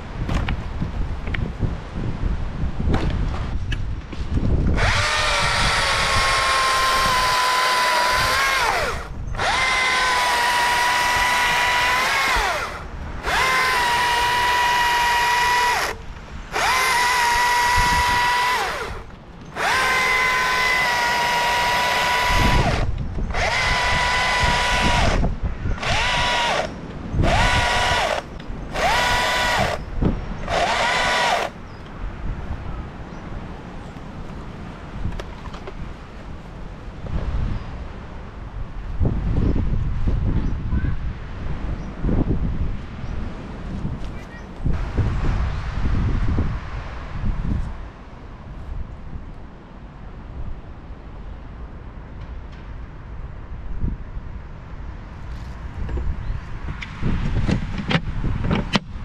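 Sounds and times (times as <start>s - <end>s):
electric chainsaw whine: 4.7s - 31.6s.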